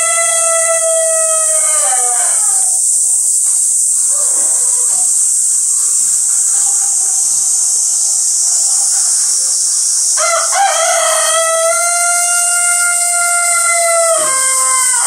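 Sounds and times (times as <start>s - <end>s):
rooster crowing: 0.0s - 2.9s, 10.2s - 15.0s
high-pitched hiss: 0.0s - 15.0s.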